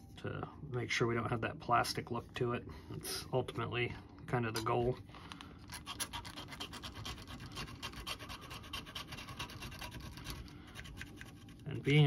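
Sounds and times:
file rasping over plastic: 5.7 - 11.7.

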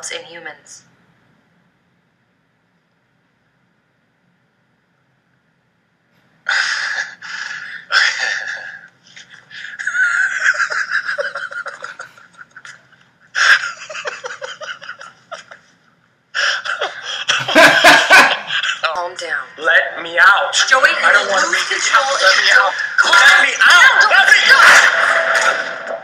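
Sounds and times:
gasping breaths: 6.5 - 8.9
man laughing: 7.9 - 15.7, 16.6 - 18.9.

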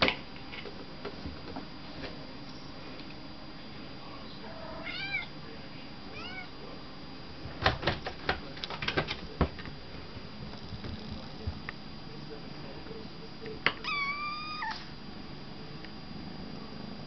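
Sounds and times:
kitten meowing: 4.8 - 5.3, 6.1 - 6.5, 13.8 - 14.9.

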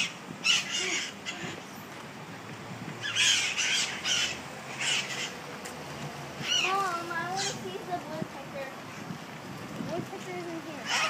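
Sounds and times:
parrots high-pitched calls: 0.0 - 1.7, 3.0 - 5.4, 6.4 - 7.6.

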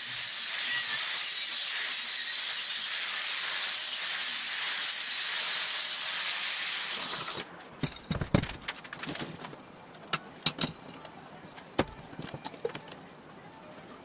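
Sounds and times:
angle grinder cutting steel: 0.0 - 7.4.

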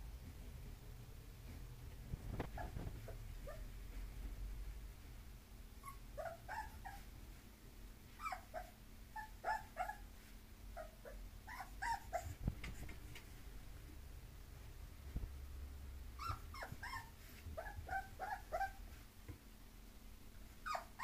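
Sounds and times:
puppy whimpering: 5.8 - 7.1, 8.2 - 10.1, 10.7 - 12.4, 16.2 - 18.8, 20.6 - 21.0.

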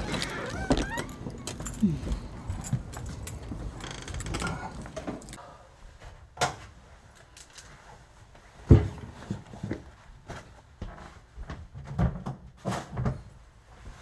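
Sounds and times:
clicks rustles and creaks of bags: 0.0 - 5.4, 7.1 - 7.9.

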